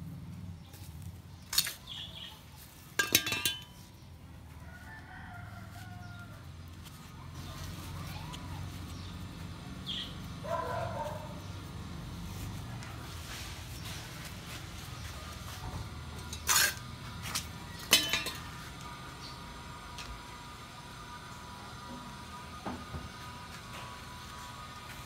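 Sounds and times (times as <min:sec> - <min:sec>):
rooster crowing: 0:04.5 - 0:06.5.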